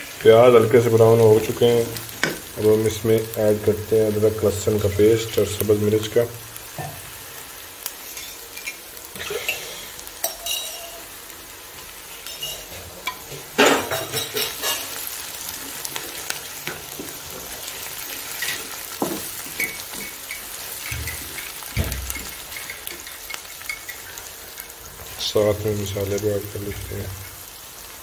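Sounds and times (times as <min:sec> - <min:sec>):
onions sizzling in a pot: 0:00.0 - 0:28.0
spatula knocking and scraping pot: 0:18.4 - 0:24.0.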